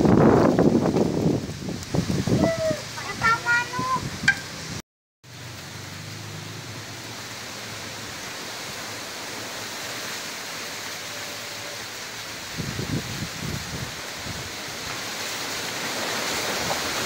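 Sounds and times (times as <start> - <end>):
strong wind through plants: 0.0 - 17.0.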